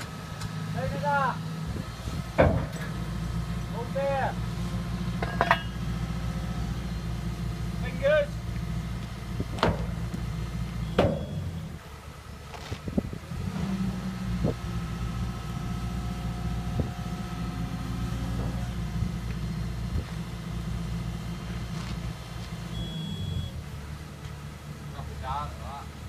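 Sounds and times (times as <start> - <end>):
excavator diesel engine running: 0.0 - 26.0
sharp metal knocks: 2.4 - 3.0
short high beep: 10.8 - 11.7, 22.7 - 23.6.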